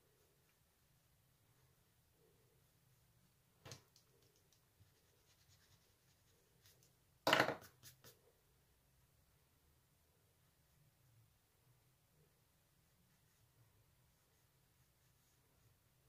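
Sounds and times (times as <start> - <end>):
pencil scratching on paper: 4.8 - 6.9.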